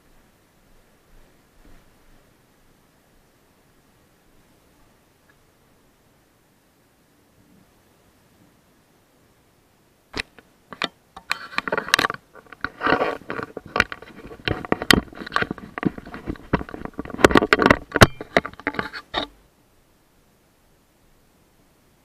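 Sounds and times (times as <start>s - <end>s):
close-up clicks and knocks: 10.2s - 19.3s
scraping rustles: 11.2s - 19.4s.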